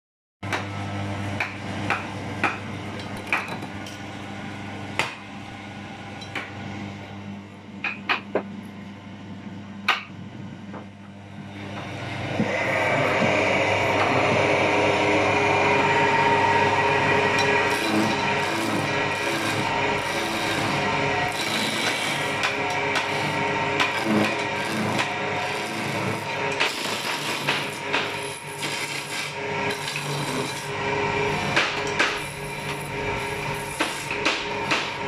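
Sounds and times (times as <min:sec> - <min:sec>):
wood lathe humming: 0:12.0 - 0:35.0
wood being turned on lathe: 0:12.2 - 0:35.0.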